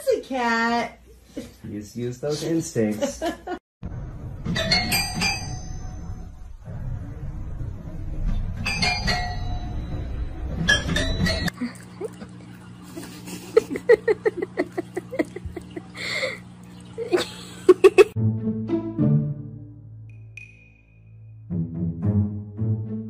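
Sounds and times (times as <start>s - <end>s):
low rumble: 5.9s - 8.7s
pet lapping food: 11.5s - 18.1s.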